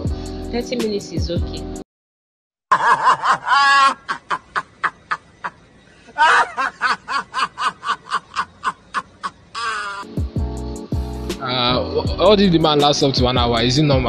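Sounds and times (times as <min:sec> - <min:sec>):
man laughing hard: 0:02.7 - 0:10.2.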